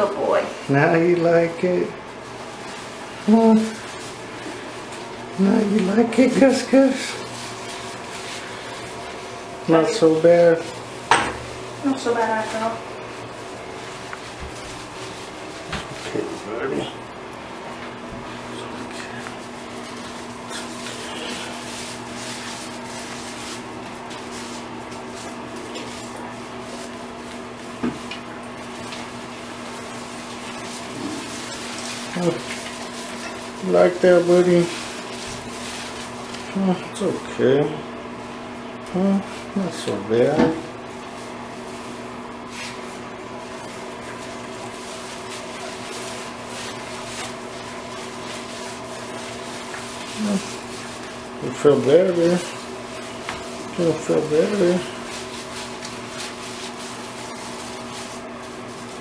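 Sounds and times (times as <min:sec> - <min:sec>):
steady background hum: 0:00.0 - 0:59.0
wet rubbing of fur: 0:00.0 - 0:59.0.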